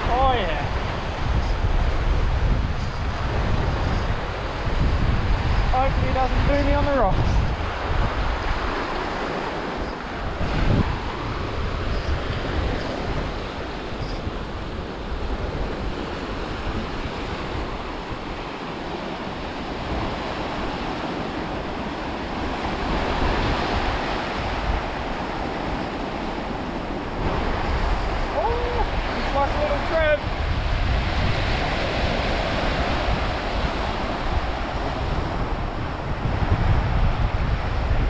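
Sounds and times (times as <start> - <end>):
wind rumbling on microphone: 0.0 - 38.0
small waves washing over rocks: 14.6 - 36.2.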